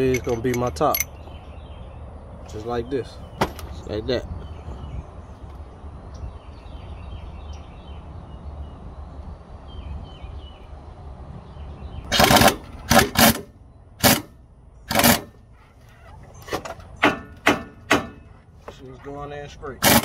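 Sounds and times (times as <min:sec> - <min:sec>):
air impact wrench bursts: 0:12.1 - 0:14.3, 0:14.9 - 0:15.3, 0:19.8 - 0:20.0.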